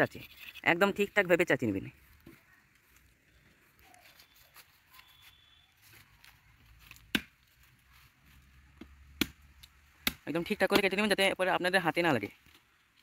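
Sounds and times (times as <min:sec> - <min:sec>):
machete chopping bamboo: 0:06.8 - 0:07.4, 0:08.8 - 0:11.0.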